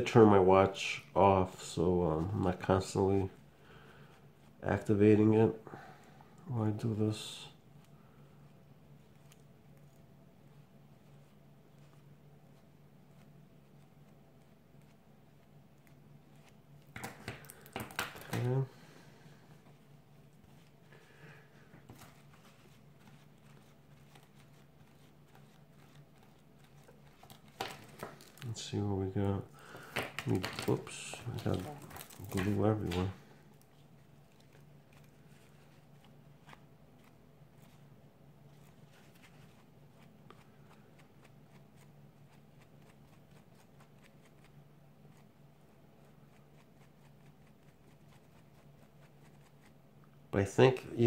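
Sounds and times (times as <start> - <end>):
low steady hum: 0.0 - 51.0
small clicks and scratches: 9.0 - 10.1.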